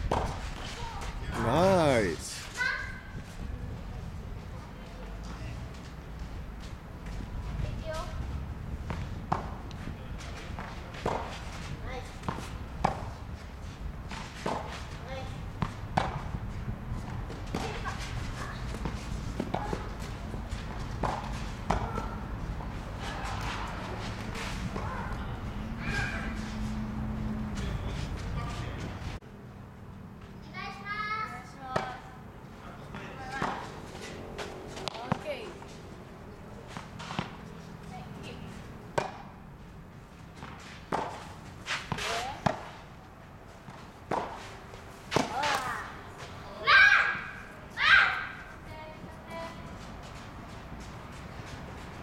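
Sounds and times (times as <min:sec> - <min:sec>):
tennis balls bouncing on court: 0:00.0 - 0:00.6, 0:08.8 - 0:09.8, 0:10.4 - 0:13.2, 0:14.0 - 0:25.3, 0:31.6 - 0:32.0, 0:32.9 - 0:35.8, 0:36.6 - 0:39.4, 0:40.3 - 0:42.8, 0:43.6 - 0:44.5, 0:45.1 - 0:46.4.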